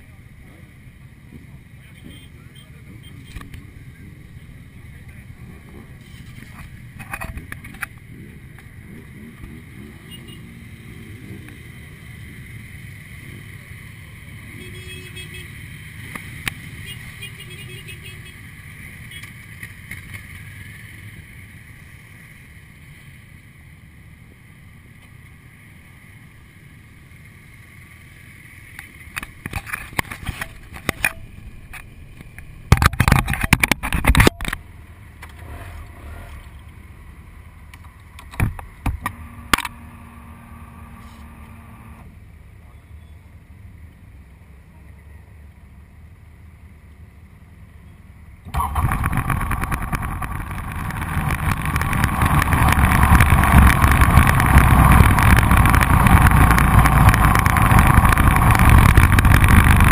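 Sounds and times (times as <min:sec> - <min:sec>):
motorcycle engines idling: 0:00.0 - 0:59.9
loud rushes of noise: 0:35.2 - 0:36.8, 0:48.5 - 0:59.9.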